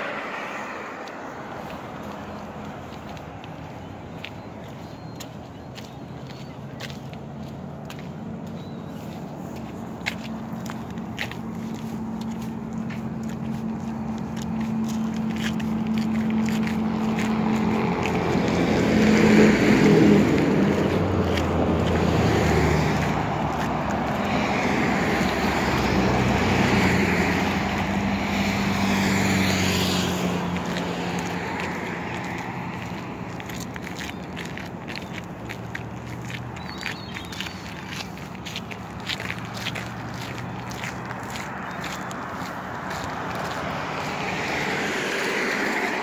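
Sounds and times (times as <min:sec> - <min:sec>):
cars passing: 0:00.0 - 0:46.0
footsteps on gravel: 0:00.0 - 0:46.0.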